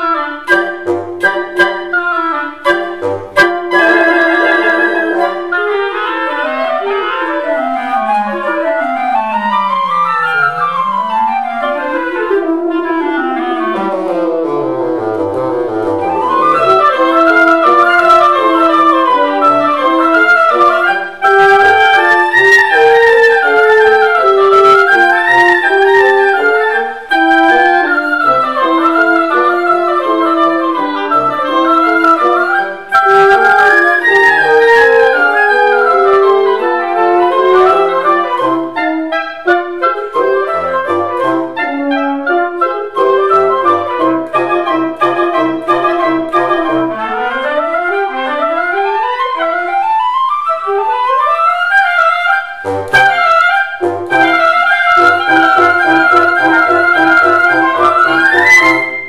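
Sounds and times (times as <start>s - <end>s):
woodwind quintet classical piece: 0.0s - 59.0s.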